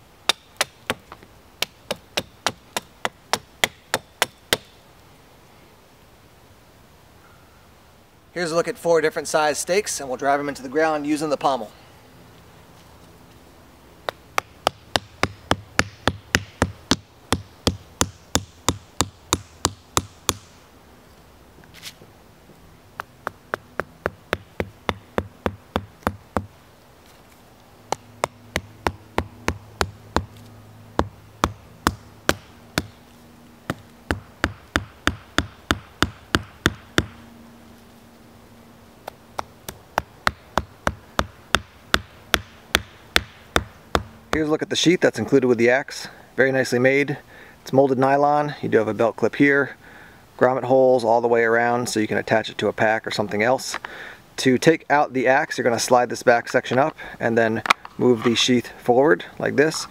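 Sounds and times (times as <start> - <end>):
axe knocking wooden stakes: 0.3 - 4.7, 14.1 - 20.5, 23.0 - 26.5, 31.0 - 33.0, 33.7 - 37.2, 39.4 - 44.4.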